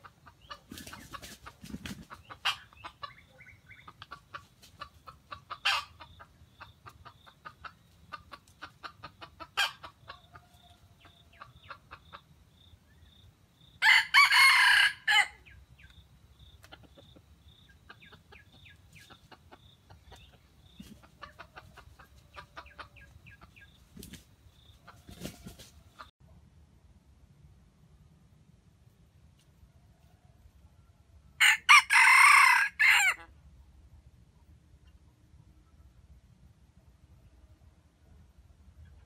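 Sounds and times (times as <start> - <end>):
soft clucking calls: 0.0 - 13.2, 15.4 - 26.1
rooster crowing: 13.8 - 15.4, 31.4 - 33.3.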